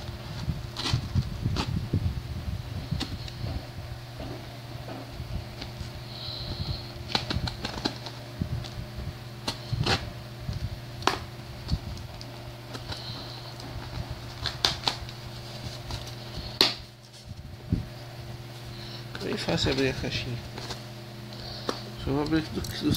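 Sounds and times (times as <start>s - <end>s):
electric fan humming: 0.0s - 22.9s
scissors scraping packing tape: 0.8s - 1.7s, 7.1s - 8.2s, 12.7s - 16.8s.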